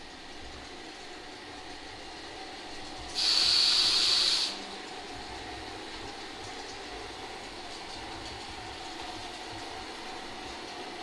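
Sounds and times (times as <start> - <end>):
model railway running noise: 0.0 - 11.0
sharp steam hiss: 3.2 - 4.6.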